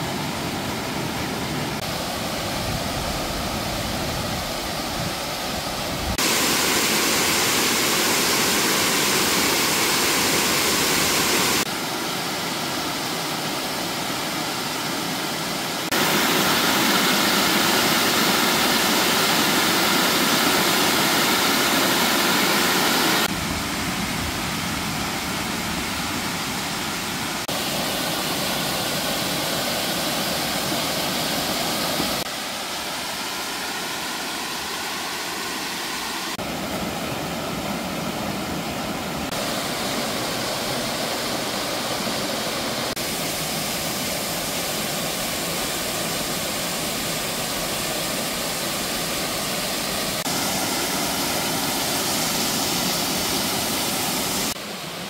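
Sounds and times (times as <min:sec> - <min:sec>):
stream rushing over boulders: 0:00.0 - 0:55.0.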